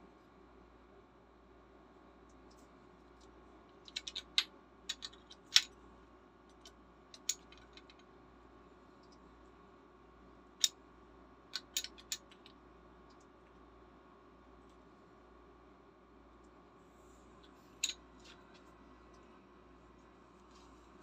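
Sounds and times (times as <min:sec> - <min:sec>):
small tools clicking and tapping: 0:02.4 - 0:05.7, 0:06.5 - 0:08.0, 0:11.5 - 0:13.2.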